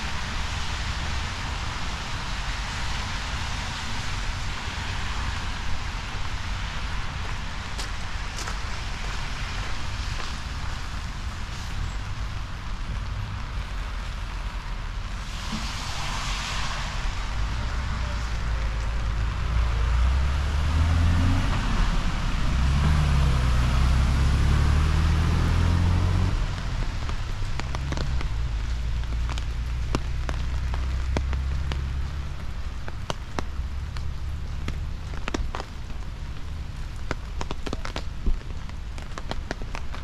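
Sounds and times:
rain falling: 0:00.0 - 0:40.0
raindrops tapping: 0:24.9 - 0:40.0.

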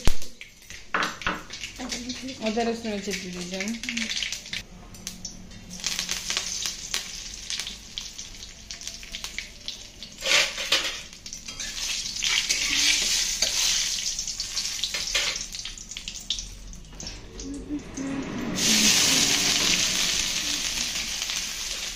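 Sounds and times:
chillies sizzling in oil: 0:00.0 - 0:21.9
metal ladle scraping pan: 0:10.2 - 0:14.0.

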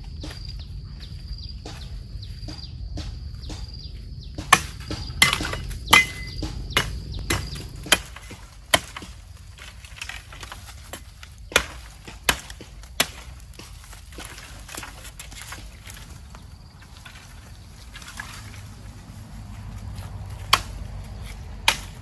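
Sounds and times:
blade chopping bamboo: 0:04.4 - 0:16.2, 0:19.9 - 0:22.0.

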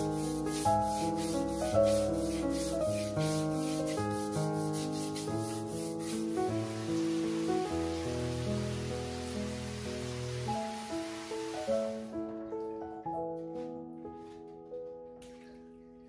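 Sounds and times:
brush scrubbing wet tiles: 0:00.0 - 0:10.5
background music: 0:00.0 - 0:16.0.

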